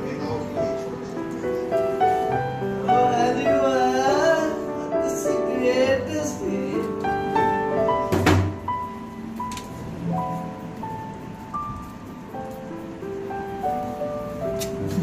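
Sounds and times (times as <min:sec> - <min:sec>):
keyboard notes: 0:00.0 - 0:15.0.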